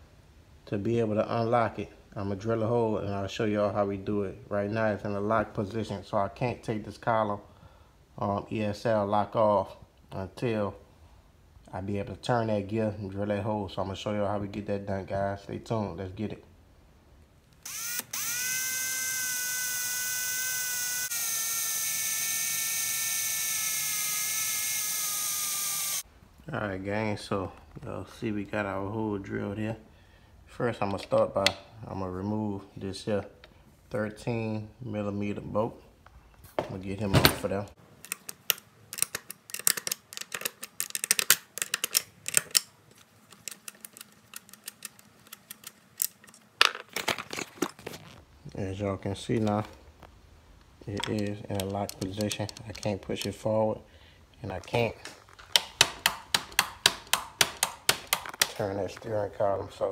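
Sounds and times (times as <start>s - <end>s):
metal wrench clicking on bolt: 38.0s - 42.7s, 51.0s - 53.4s.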